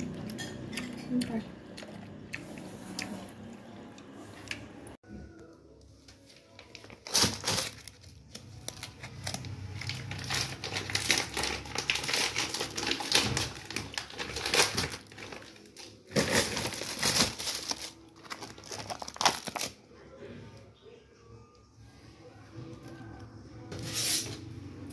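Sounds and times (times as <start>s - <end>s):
plastic bags crinkling: 6.2s - 19.8s.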